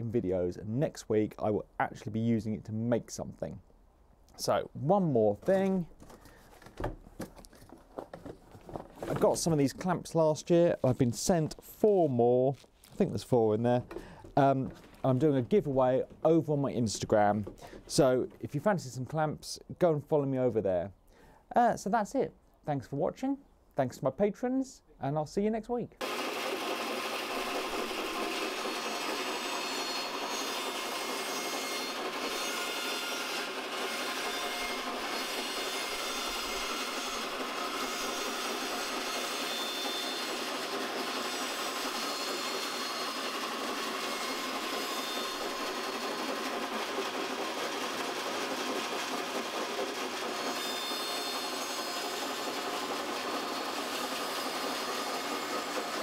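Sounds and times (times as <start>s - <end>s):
bandsaw cutting timber: 26.0s - 56.0s.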